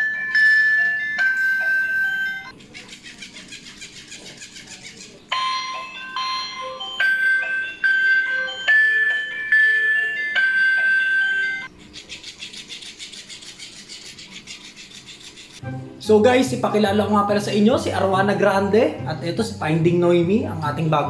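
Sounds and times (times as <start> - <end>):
toy electronic beeping jingle: 0.0 - 2.6, 5.3 - 11.7
toy fast even buzzing: 2.5 - 5.5, 11.8 - 15.6.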